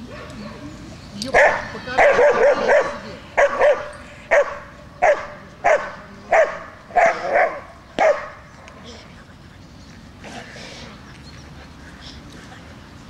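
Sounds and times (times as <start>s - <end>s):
dog barking: 1.3s - 8.4s.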